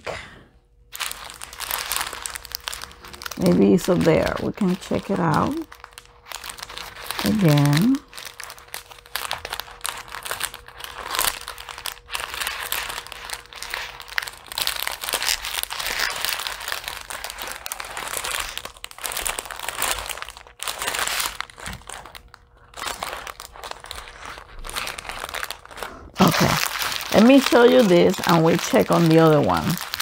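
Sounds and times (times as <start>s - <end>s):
plastic packets crinkling: 0.9s - 30.0s.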